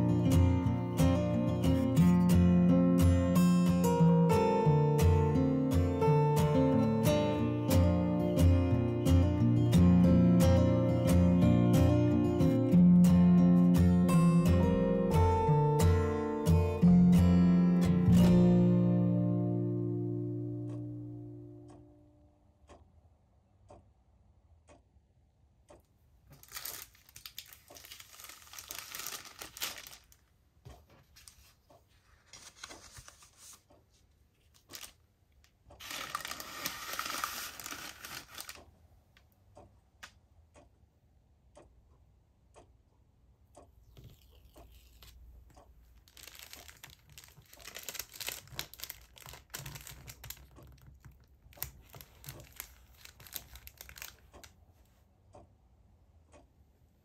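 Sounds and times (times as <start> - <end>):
paper bags rustling and crinkling: 26.3 - 30.2, 30.9 - 33.7, 34.4 - 35.0, 35.8 - 38.6, 46.0 - 54.4
stickers peeled off backing: 26.3 - 30.2, 31.1 - 33.8, 35.8 - 38.6, 46.0 - 54.5.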